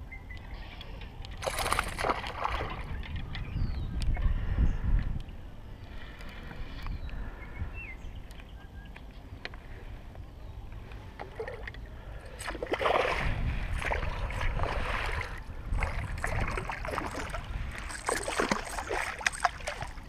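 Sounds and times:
wind rumble on microphone: 0.0 - 20.0
fish splashing in shallow water: 1.3 - 3.0, 11.2 - 20.0.

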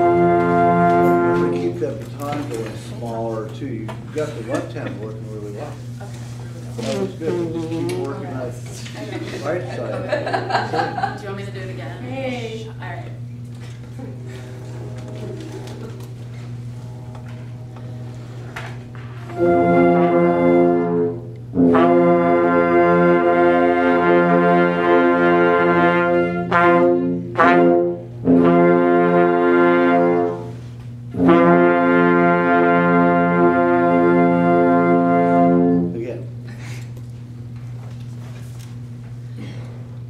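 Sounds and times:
wind ensemble playing chords: 0.0 - 2.6, 14.1 - 36.1
low room hum: 0.0 - 40.0.

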